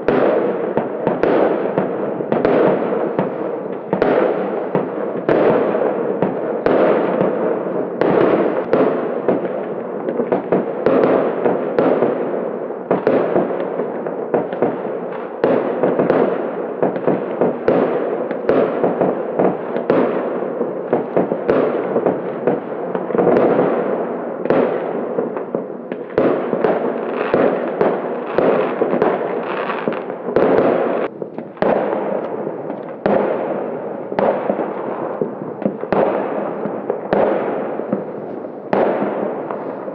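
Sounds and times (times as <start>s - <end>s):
fireworks bangs: 0.0s - 39.9s
fireworks crackling: 0.0s - 39.9s.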